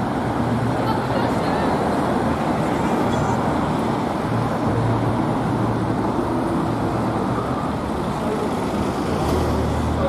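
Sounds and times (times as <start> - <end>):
street traffic engines: 0.0 - 10.0.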